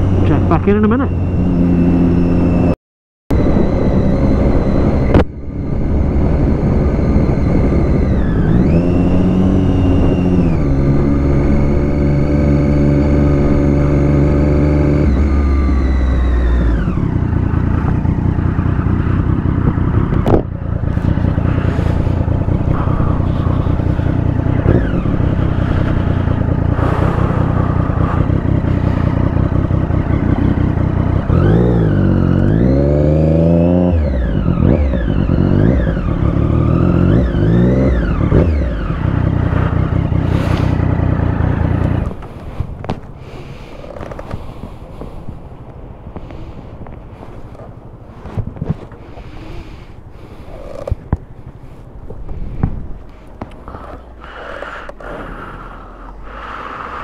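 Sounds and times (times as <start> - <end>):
motorcycle engine running: 0.0 - 57.0
steady rushing noise: 19.6 - 32.0.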